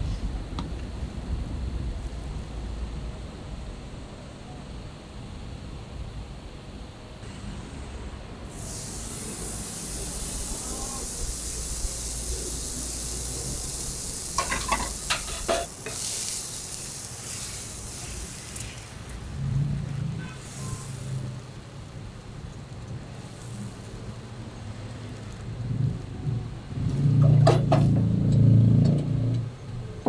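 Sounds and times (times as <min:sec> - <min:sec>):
crepe batter sizzling on griddle: 0:07.2 - 0:29.4.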